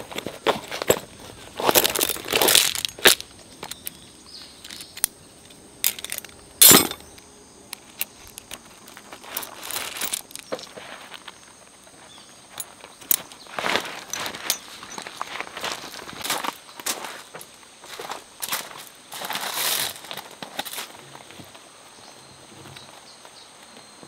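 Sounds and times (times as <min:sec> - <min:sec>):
gravel crunching: 0:00.0 - 0:21.8
metal carabiners clinking: 0:01.6 - 0:04.0, 0:04.6 - 0:07.2, 0:09.3 - 0:10.6, 0:14.0 - 0:15.1
tarp fabric rustling: 0:09.0 - 0:11.3.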